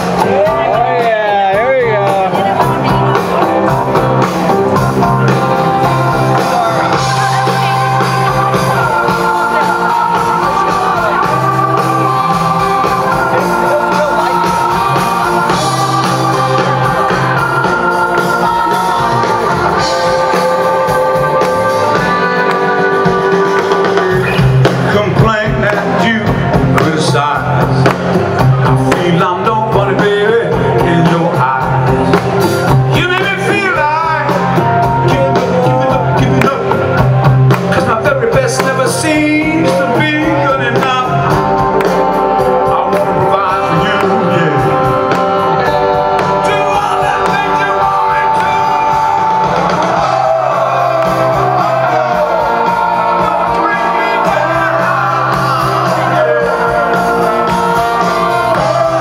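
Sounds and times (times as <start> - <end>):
man singing: 0.0 - 4.0, 4.7 - 59.0
live rock band playing: 0.0 - 59.0.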